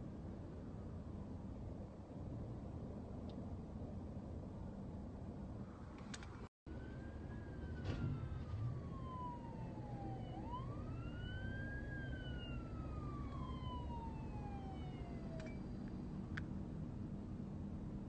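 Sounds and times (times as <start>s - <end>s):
police siren wailing: 6.7s - 15.8s.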